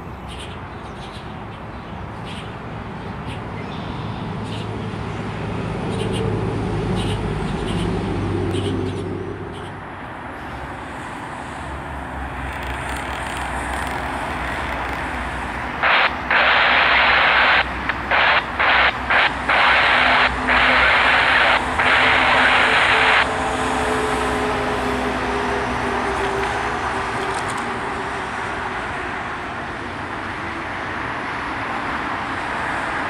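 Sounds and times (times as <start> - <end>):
distant traffic rumble: 0.0 - 33.0
scanner radio static: 12.8 - 24.1.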